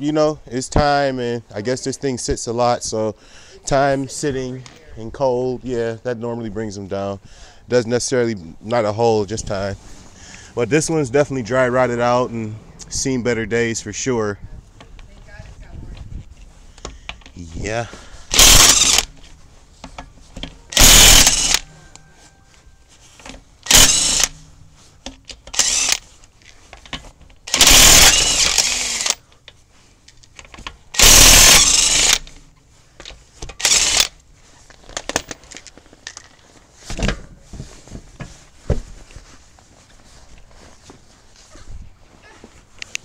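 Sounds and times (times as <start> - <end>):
impact wrench hammering: 18.3 - 19.2, 20.4 - 21.6, 23.6 - 24.4, 27.5 - 29.2, 31.0 - 32.3.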